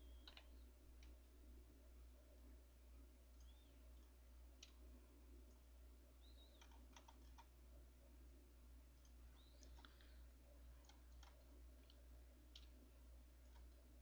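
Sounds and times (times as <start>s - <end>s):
faint computer mouse clicking: 0.0s - 1.2s, 3.3s - 4.8s, 6.4s - 7.5s, 8.9s - 10.2s, 10.8s - 12.8s, 13.4s - 13.8s
low steady hum: 0.0s - 14.0s.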